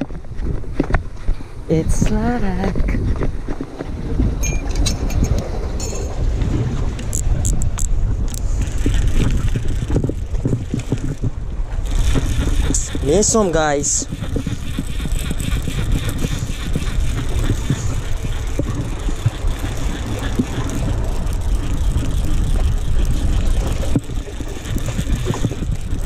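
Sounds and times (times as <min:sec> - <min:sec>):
fishing reel cranking: 0:07.1 - 0:26.0.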